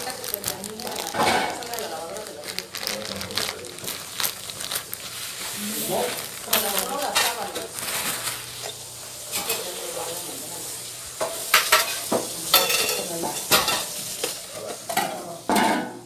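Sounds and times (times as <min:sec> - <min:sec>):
clicks and knocks of objects: 0:00.0 - 0:05.0
steady hiss: 0:00.0 - 0:15.5.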